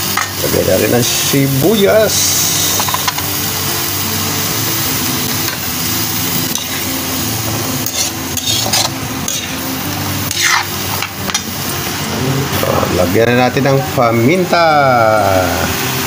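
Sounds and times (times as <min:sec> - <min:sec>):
food sizzling in a wok: 0:00.0 - 0:16.0
metal ladle scraping a pan: 0:07.8 - 0:09.6, 0:10.3 - 0:11.4.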